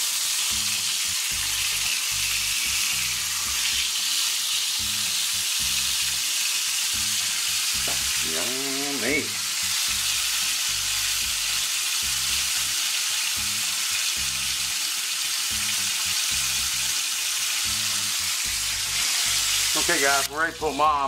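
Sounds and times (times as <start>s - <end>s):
patties sizzling in skillet: 0.0s - 21.0s.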